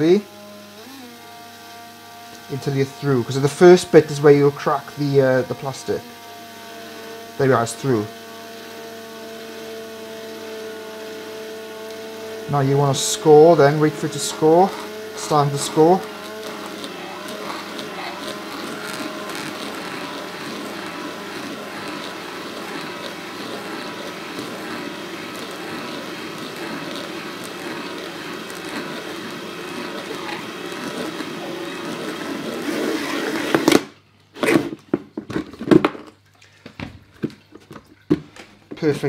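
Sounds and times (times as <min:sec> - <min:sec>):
electric drill cutting plastic: 0:00.0 - 0:34.9.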